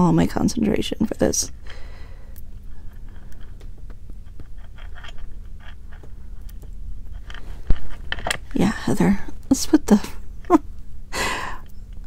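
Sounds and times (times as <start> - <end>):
faint steady hum: 0.0 - 12.0
small metal clicks: 1.7 - 8.6.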